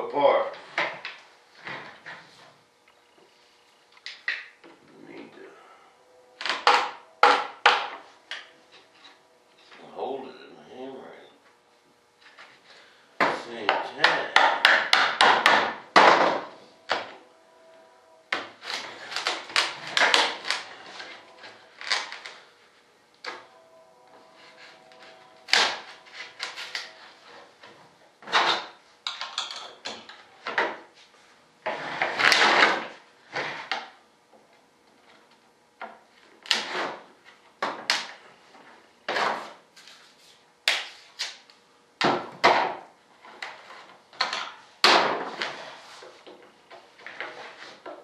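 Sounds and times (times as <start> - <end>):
sharp knocks and taps on mold: 13.2 - 16.4
scraping noises: 30.9 - 33.7, 45.2 - 46.3, 47.0 - 47.9.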